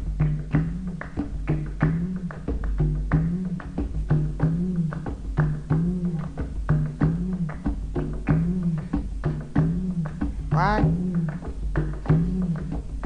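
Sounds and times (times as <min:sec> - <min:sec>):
repeating low bass figure: 0:09.7 - 0:11.3.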